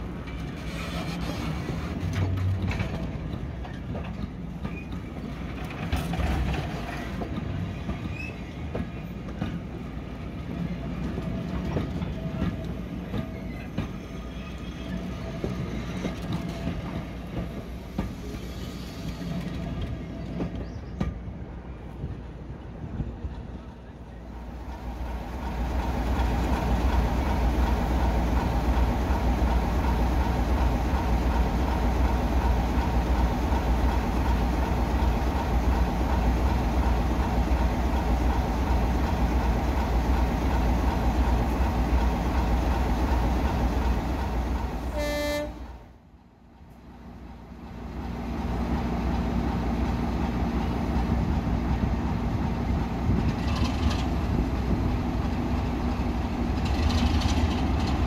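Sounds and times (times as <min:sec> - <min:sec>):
diesel locomotive engine rumbling: 0:00.0 - 0:58.0
locomotive horn toot: 0:44.9 - 0:45.8.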